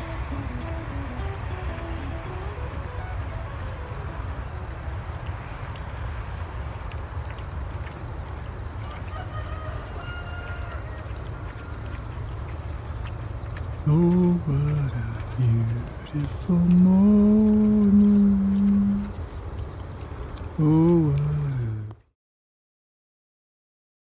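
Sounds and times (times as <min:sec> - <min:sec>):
faint distant bird call: 0:00.0 - 0:08.0, 0:08.8 - 0:21.9
insect chorus: 0:00.0 - 0:22.0
wind rumbling on microphone: 0:10.8 - 0:20.6.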